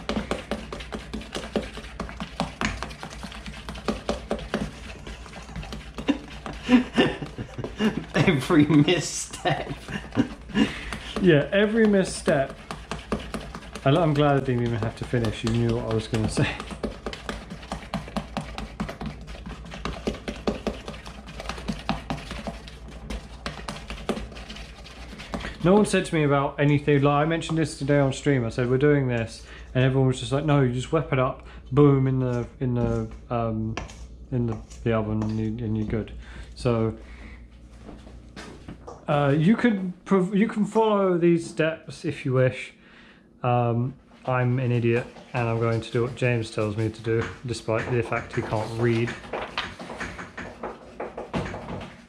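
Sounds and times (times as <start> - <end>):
utensil tapping mixing bowl: 0.0 - 29.4, 33.7 - 36.1, 44.3 - 52.0.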